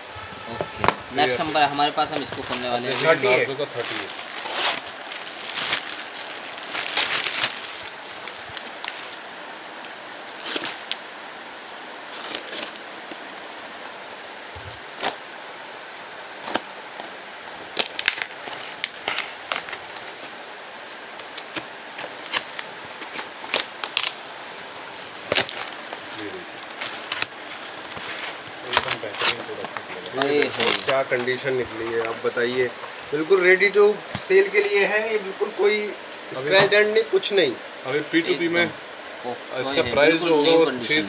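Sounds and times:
background hiss: 0:00.0 - 0:41.0
packaging clicks and rustles: 0:01.3 - 0:09.2, 0:10.2 - 0:11.0, 0:12.1 - 0:14.0, 0:14.6 - 0:15.2, 0:16.4 - 0:20.5, 0:21.1 - 0:34.6.

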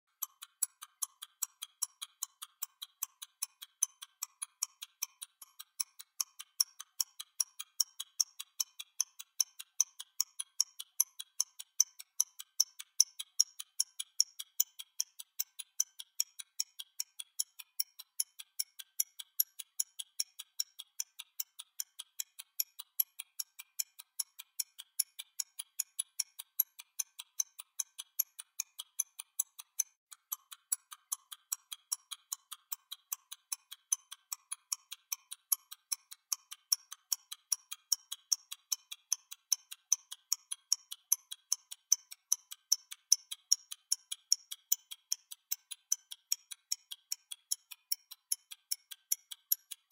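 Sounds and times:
stopwatch ticking: 0:00.1 - 0:49.9.

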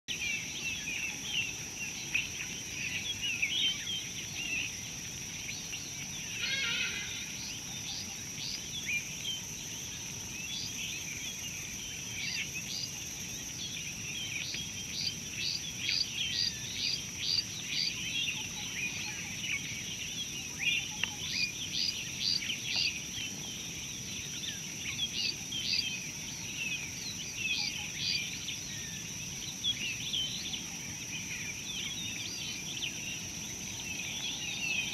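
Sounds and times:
small birds chirping: 0:00.1 - 0:34.9
high-pitched insect drone: 0:06.2 - 0:08.2.

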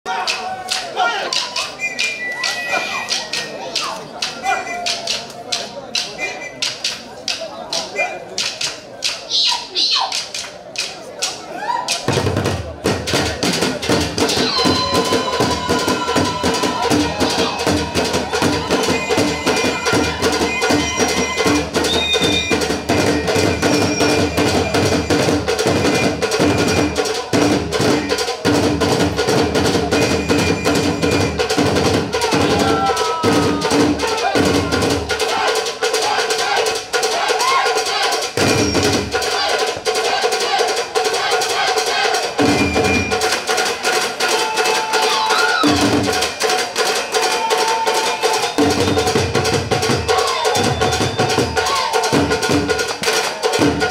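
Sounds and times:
drum stick clicks: 0:00.2 - 0:12.1.

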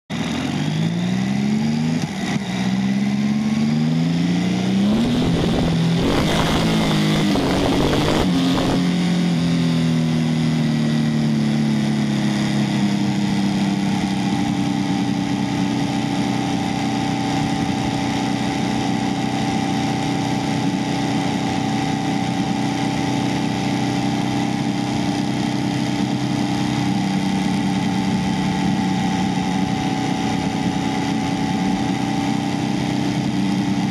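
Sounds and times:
motorcycle engine accelerating: 0:00.1 - 0:33.9
rushing wind noise: 0:04.4 - 0:09.1.

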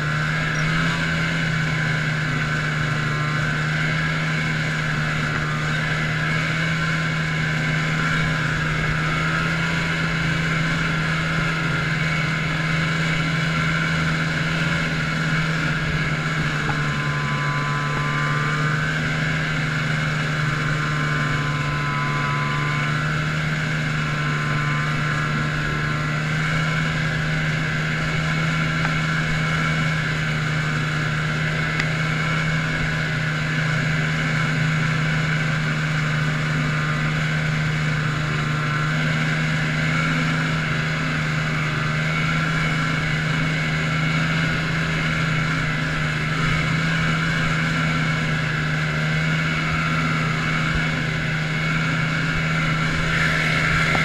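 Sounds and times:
snowmobile engine droning: 0:00.0 - 0:54.0.

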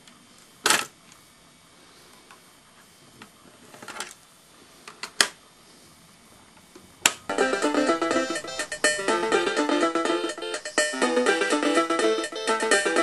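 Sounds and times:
instrumental music: 0:07.2 - 0:13.0.

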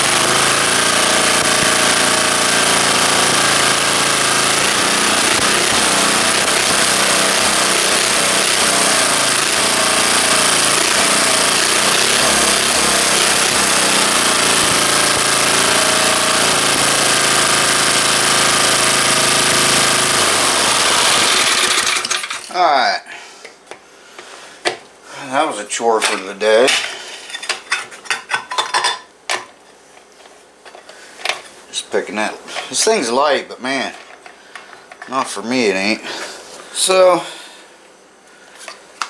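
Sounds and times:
small engine running: 0:00.0 - 0:22.4.

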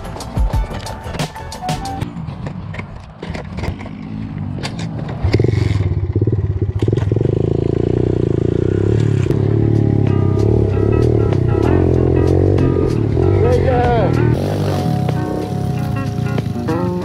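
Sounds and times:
motorbike engine under throttle: 0:02.9 - 0:11.6
bike scraping on gravel: 0:14.4 - 0:17.0.

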